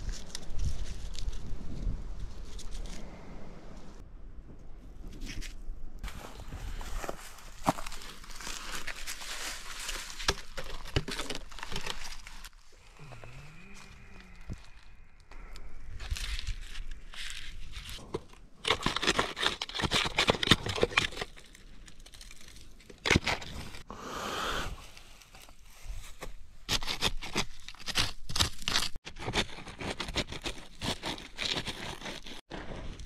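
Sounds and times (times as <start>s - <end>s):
hand digging in stony soil: 5.1s - 14.1s, 15.9s - 23.9s, 24.8s - 33.0s
rotten wood cracking and crunching: 6.8s - 23.8s, 26.7s - 33.0s.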